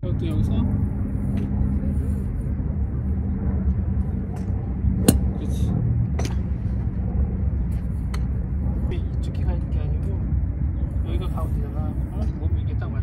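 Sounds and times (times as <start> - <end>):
steady low rumble: 0.0 - 13.0
golf club striking ball: 4.4 - 5.4.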